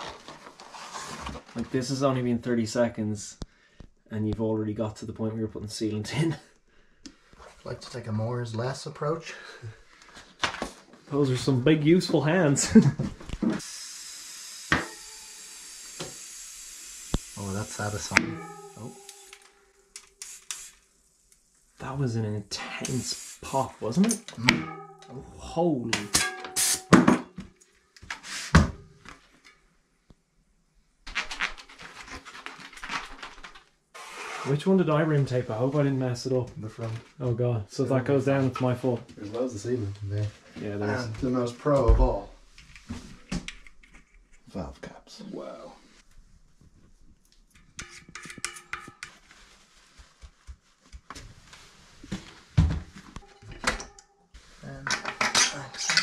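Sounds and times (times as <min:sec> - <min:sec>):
clattering handling noise: 0:54.8 - 0:56.0.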